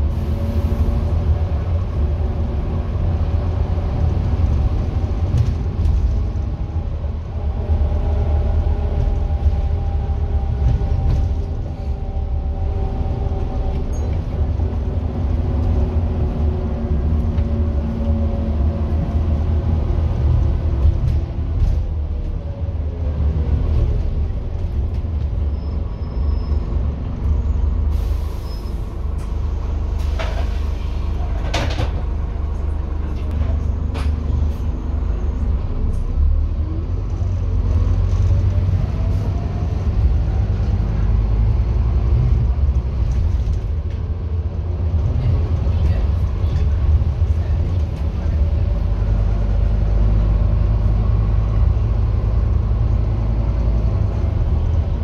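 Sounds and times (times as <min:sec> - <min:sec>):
diesel bus engine rumbling: 0:00.0 - 0:55.0
air brakes hissing: 0:27.9 - 0:29.3.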